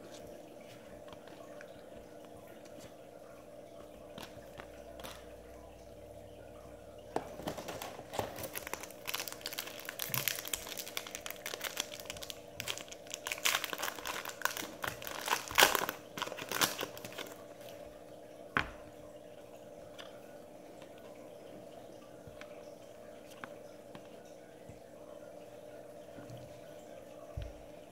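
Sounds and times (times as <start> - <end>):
card pack wrapper crinkling: 7.3 - 17.5.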